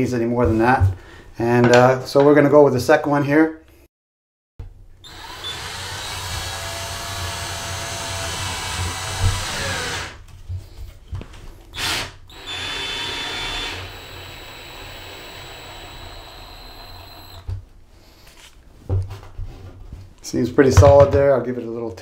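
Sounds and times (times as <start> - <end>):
cordless screwdriver running: 5.0 - 10.2, 11.8 - 17.5.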